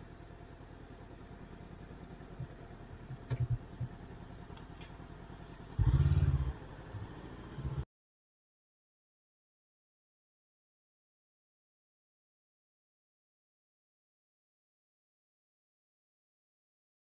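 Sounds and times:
motorcycle engine low rumble: 0.0s - 7.9s
motorcycle engine revving: 2.0s - 7.8s.

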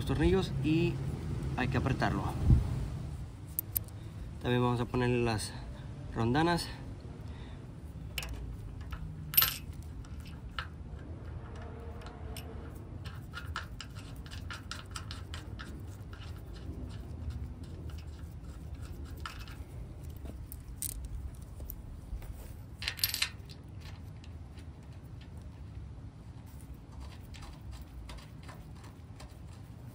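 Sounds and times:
bolts and washers clinking on metal: 3.5s - 4.0s, 8.1s - 16.5s, 18.8s - 25.5s.

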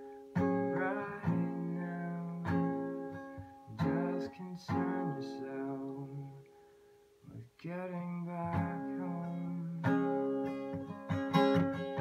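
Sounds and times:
guitar strumming chords: 0.0s - 6.6s, 7.6s - 12.0s.

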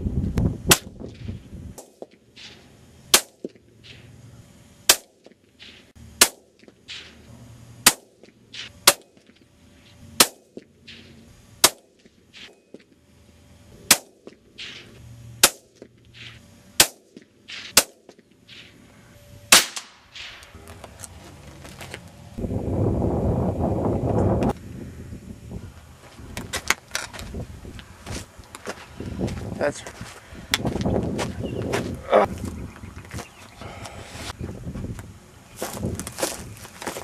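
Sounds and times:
rifle shots cracking: 3.1s - 3.5s, 4.9s - 7.2s, 7.8s - 9.2s, 10.2s - 11.0s, 11.6s - 12.6s, 13.9s - 14.8s, 15.4s - 15.8s, 16.8s - 18.1s, 19.5s - 20.5s.

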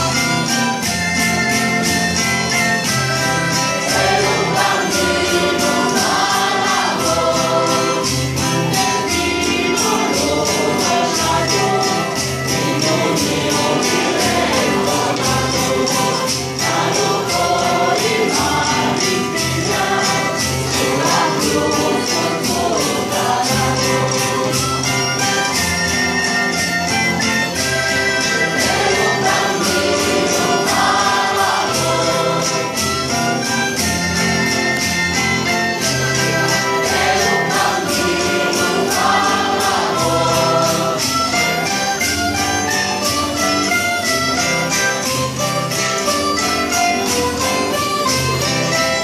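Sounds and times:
keyboard: 0.0s - 49.0s
plucked strings: 0.0s - 49.0s
choir singing: 3.2s - 25.6s, 27.6s - 33.4s, 35.4s - 42.7s
high percussive beat: 27.6s - 49.0s.

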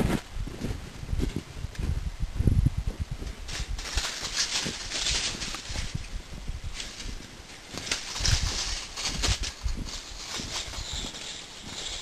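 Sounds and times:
footsteps crunching through snow: 2.9s - 12.0s.

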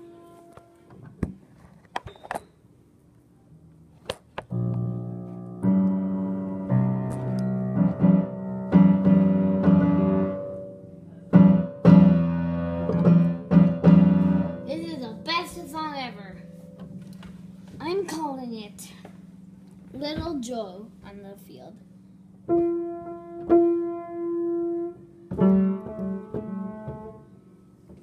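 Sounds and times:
dissonant piano chords: 0.0s - 1.0s, 4.5s - 28.0s.

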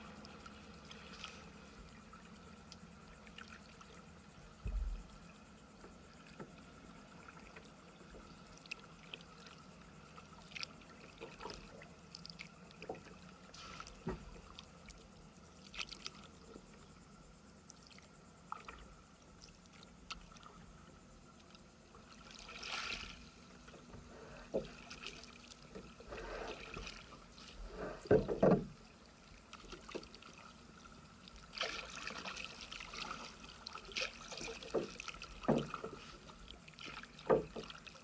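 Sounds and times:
water splashing and trickling: 0.0s - 5.4s, 6.0s - 16.8s, 21.4s - 38.0s
low thump: 4.6s - 5.1s.

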